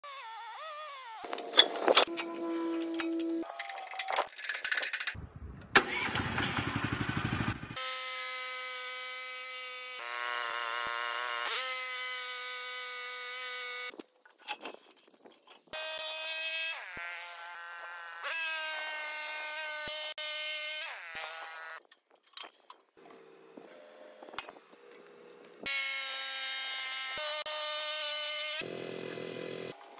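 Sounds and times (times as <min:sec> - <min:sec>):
gasoline engine pull-started: 0:05.7 - 0:07.4.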